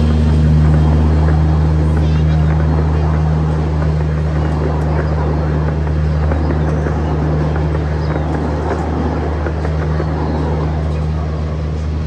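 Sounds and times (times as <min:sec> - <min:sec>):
miniature train engine hum: 0:00.0 - 0:12.0
wheels rattling on track: 0:00.0 - 0:12.0.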